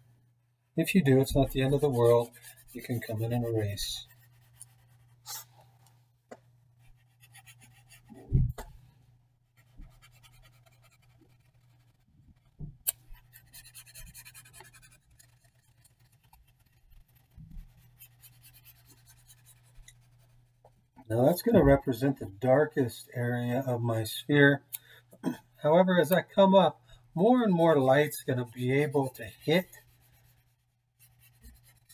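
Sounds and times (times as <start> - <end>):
pencil scratching on paper: 1.0 - 5.5, 6.8 - 8.2, 9.6 - 20.4, 27.4 - 31.9.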